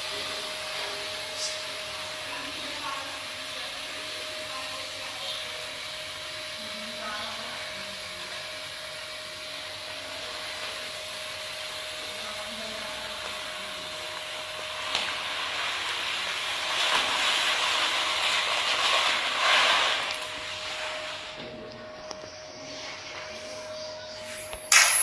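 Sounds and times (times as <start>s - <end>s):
grain pouring onto a heap: 14.4s - 21.4s.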